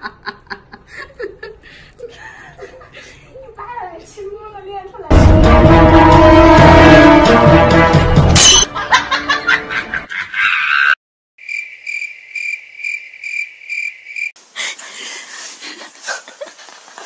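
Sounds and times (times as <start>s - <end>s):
music: 5.1s - 10.1s
cricket chirp trill: 11.4s - 14.4s.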